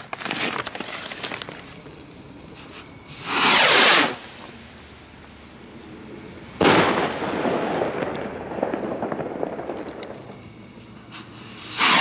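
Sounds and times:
small firework crackles: 0.0 - 12.0
firework rocket bang: 3.1 - 4.6, 6.5 - 12.0.

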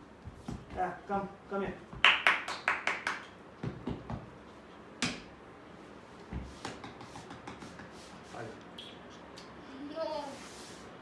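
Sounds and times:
hand claps: 1.9 - 4.2, 5.0 - 5.3, 6.5 - 8.0
light tapping sounds: 6.2 - 8.0.

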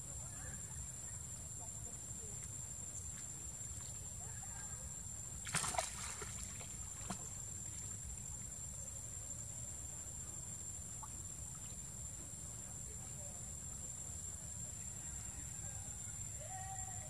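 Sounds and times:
constant high-pitched whine: 0.0 - 17.0
water splashing: 5.4 - 7.8.

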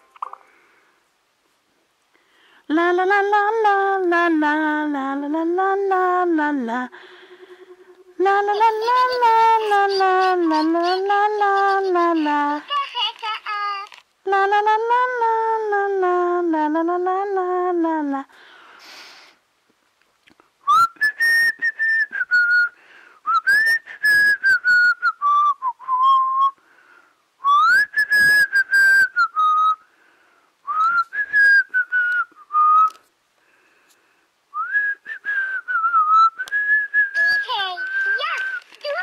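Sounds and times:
toy whistling a tune: 20.7 - 26.6, 27.4 - 29.8, 34.6 - 39.0.

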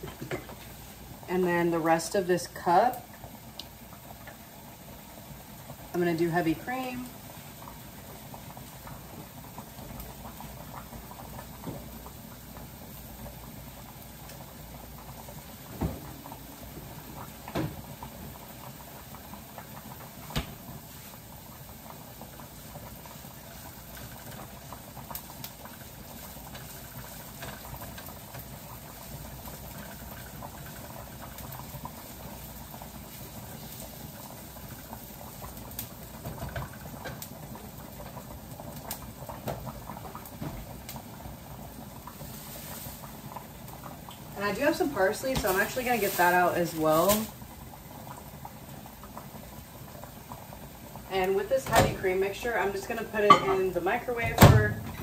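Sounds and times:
pot of water boiling: 0.0 - 55.0
utensil stirring in frying pan: 6.8 - 38.2, 41.8 - 48.3.

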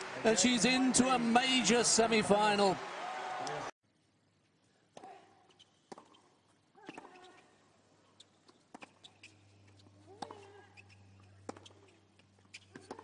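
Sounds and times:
crowd calls: 0.0 - 3.7
tennis ball bouncing: 5.0 - 7.4, 8.4 - 13.0.

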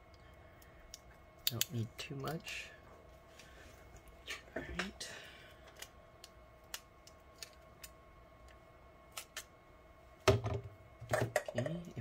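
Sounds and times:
adhesive tape clicks and crinkles: 5.7 - 9.5.

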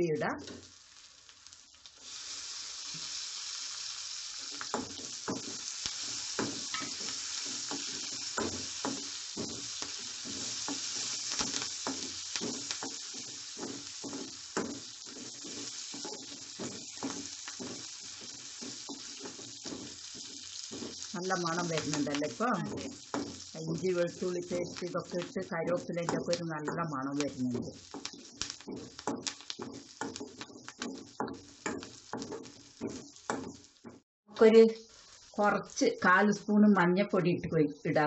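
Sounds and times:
food sizzling in hot oil: 0.0 - 38.0
metal spoon scraping pan: 4.7 - 21.9, 27.6 - 33.6.

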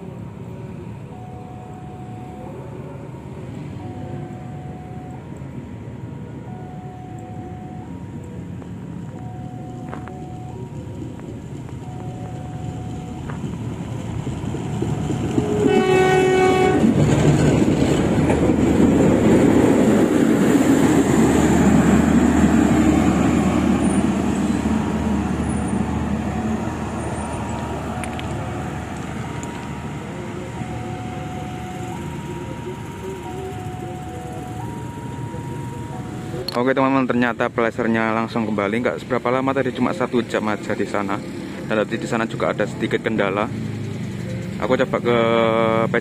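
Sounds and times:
rail machine passing by: 0.0 - 46.0
machine horn blast: 15.3 - 17.0.

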